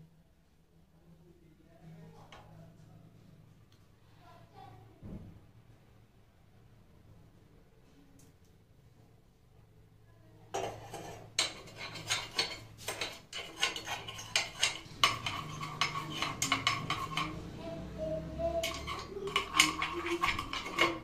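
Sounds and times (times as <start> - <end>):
metal spoon clinking on metal pan: 10.6 - 17.5, 18.6 - 21.0.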